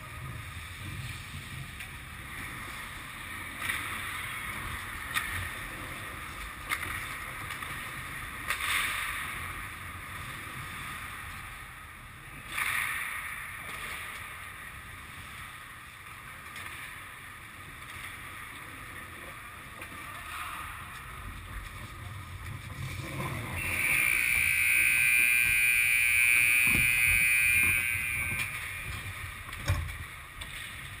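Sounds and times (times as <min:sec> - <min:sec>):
skates and sticks on ice: 0:00.0 - 0:23.9
scoreboard horn blast: 0:23.6 - 0:28.9.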